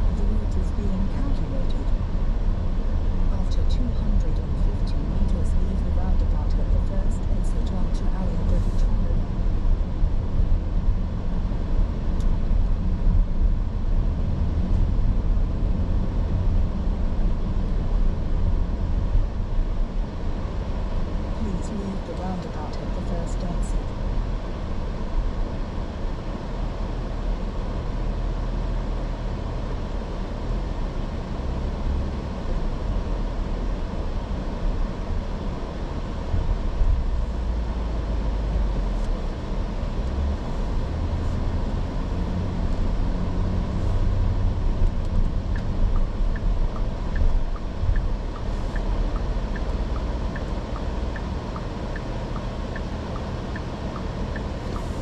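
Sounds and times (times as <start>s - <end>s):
car engine and road noise: 0.0s - 55.0s
light regular ticking: 44.8s - 55.0s.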